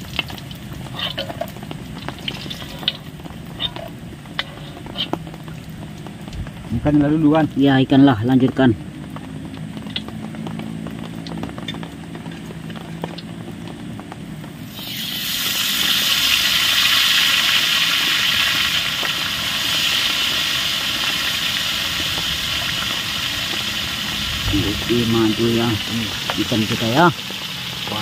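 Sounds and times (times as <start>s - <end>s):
fish frying sizzle: 0.0s - 28.0s.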